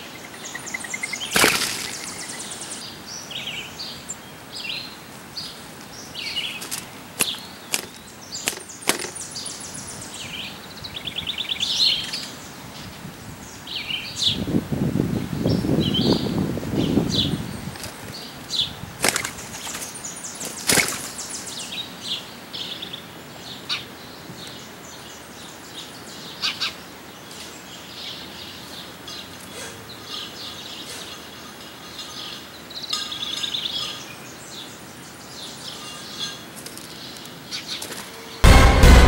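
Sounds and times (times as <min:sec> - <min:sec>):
small birds chirping: 0:00.0 - 0:14.5, 0:15.3 - 0:38.4
wings flapping: 0:01.0 - 0:02.5, 0:06.6 - 0:09.3, 0:19.0 - 0:21.3.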